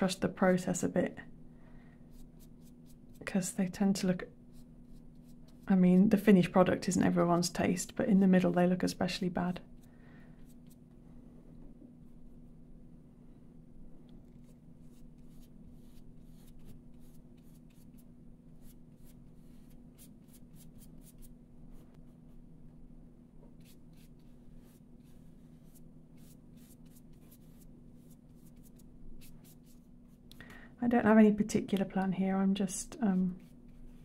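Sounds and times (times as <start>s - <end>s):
paintbrush strokes on paper: 4.0s - 6.4s, 14.3s - 22.4s, 23.5s - 30.3s, 32.9s - 34.0s.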